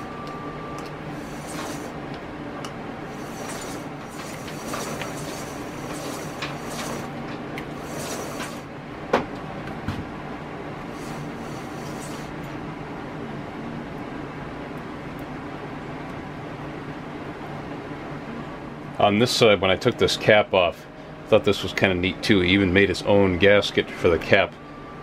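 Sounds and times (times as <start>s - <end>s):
wheel and axle turning: 1.1s - 2.0s, 3.1s - 8.7s, 10.9s - 12.4s.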